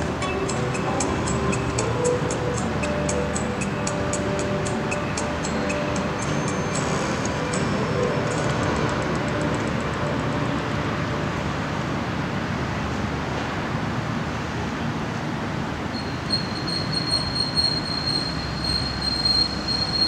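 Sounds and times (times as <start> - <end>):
high steady squeal: 0.0 - 11.6, 15.9 - 20.0
city traffic rumble: 0.0 - 20.0.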